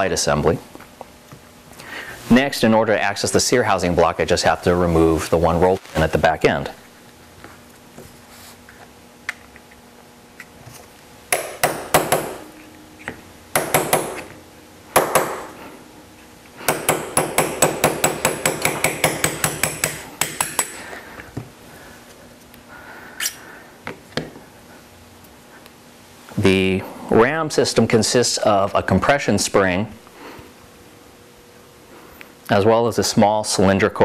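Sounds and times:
small hammer tapping a punch: 11.3s - 12.4s, 13.6s - 14.3s, 15.0s - 15.5s, 16.7s - 20.8s.

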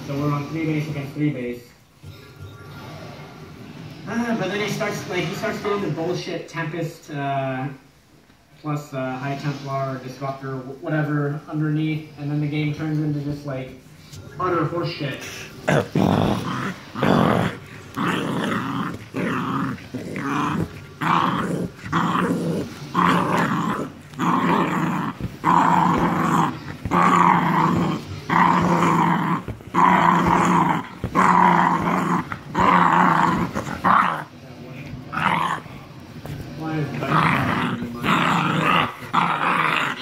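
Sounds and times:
dogs growling in play: 15.2s - 40.0s.

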